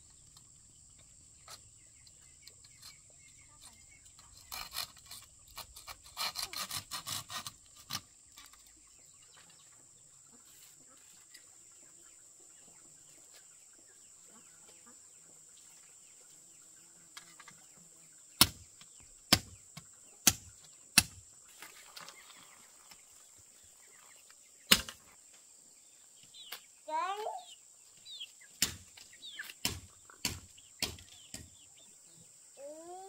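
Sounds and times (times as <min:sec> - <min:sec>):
strikes on bamboo: 0:18.4 - 0:21.2, 0:24.7 - 0:25.1, 0:28.5 - 0:31.6.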